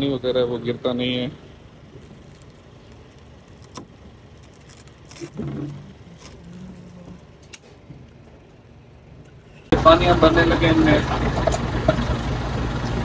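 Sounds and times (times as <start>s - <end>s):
low background noise: 0.0s - 11.9s
plastic wrap crinkling: 1.8s - 8.5s.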